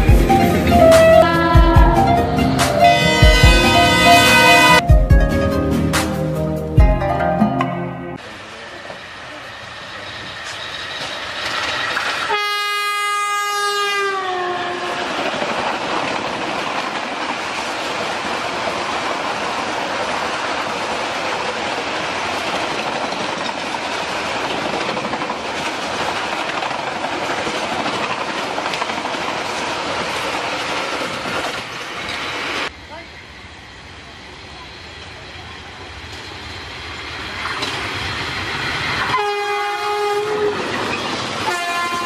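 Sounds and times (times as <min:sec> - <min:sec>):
passing train coaches rushing: 0:00.0 - 0:04.8, 0:08.2 - 0:42.0
train horn blast: 0:00.4 - 0:04.8, 0:12.3 - 0:15.1, 0:39.1 - 0:40.6, 0:41.4 - 0:42.0
wheels clicking over rail joints: 0:14.9 - 0:32.4.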